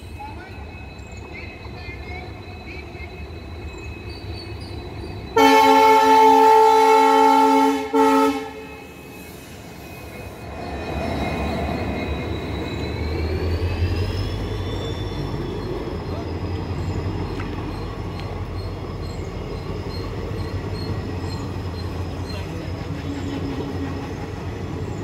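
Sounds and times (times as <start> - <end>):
locomotive engine hum: 0.0 - 25.0
train wheels rumbling: 0.0 - 25.0
locomotive horn blasts: 5.4 - 9.1.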